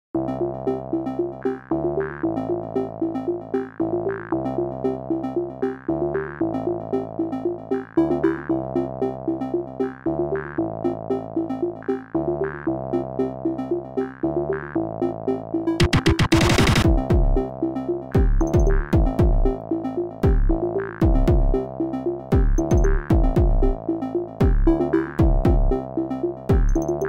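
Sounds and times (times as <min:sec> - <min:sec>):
electronic synthesizer music: 0:00.2 - 0:27.0.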